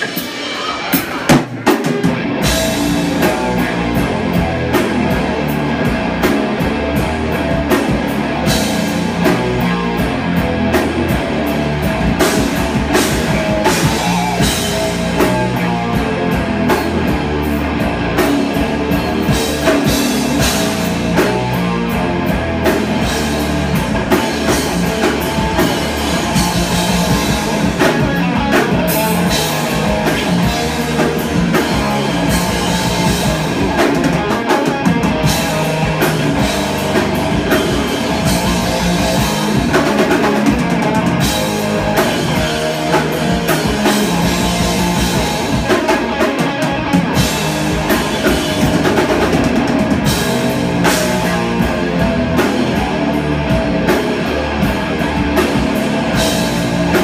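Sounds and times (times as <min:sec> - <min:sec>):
drum and cymbal hits: 0:00.0 - 0:57.0
live rock band playing: 0:00.0 - 0:57.0.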